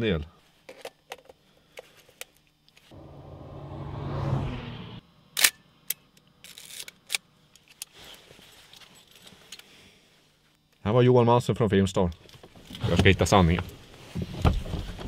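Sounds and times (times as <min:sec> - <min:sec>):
car noise: 0:02.9 - 0:05.3.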